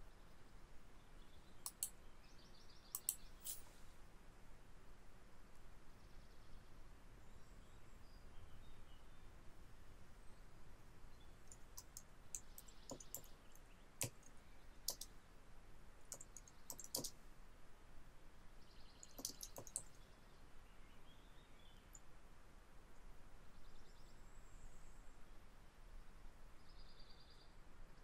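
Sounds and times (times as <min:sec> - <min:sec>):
faint background hiss: 0:00.0 - 0:28.0
computer keyboard keystrokes: 0:11.5 - 0:13.3, 0:14.9 - 0:15.1, 0:16.1 - 0:17.1, 0:19.0 - 0:19.9.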